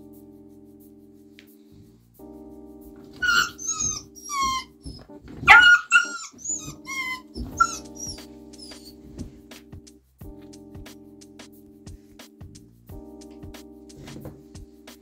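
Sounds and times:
soft background music: 0.0s - 15.0s
puppy yelping and whining: 3.2s - 8.9s.

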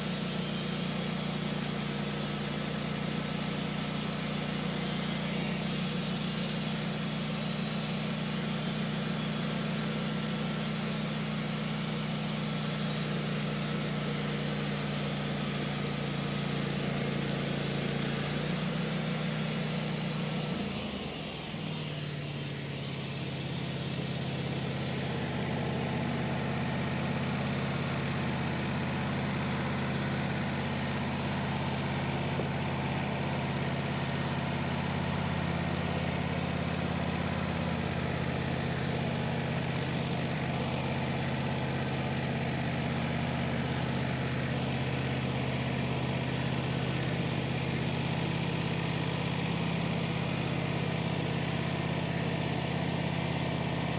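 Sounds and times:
band blade sawing log: 0.0s - 53.9s
sawmill engine running: 0.0s - 53.9s.

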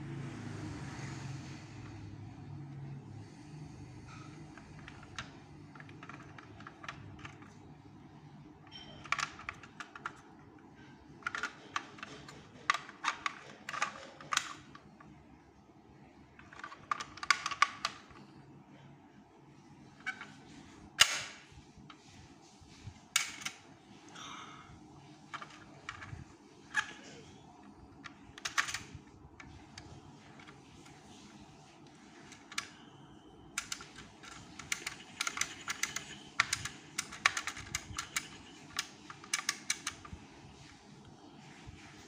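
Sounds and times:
plastic toy truck clicking: 4.6s - 7.6s, 8.7s - 10.2s, 11.2s - 14.8s, 16.4s - 18.1s, 33.6s - 40.1s.

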